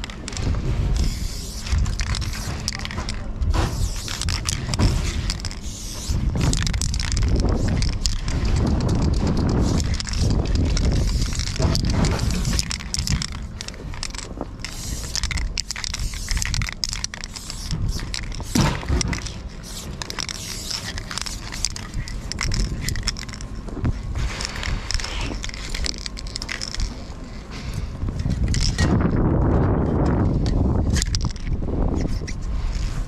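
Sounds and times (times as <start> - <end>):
low microphone rumble: 0.0 - 20.0
spray paint can hissing: 0.9 - 23.4.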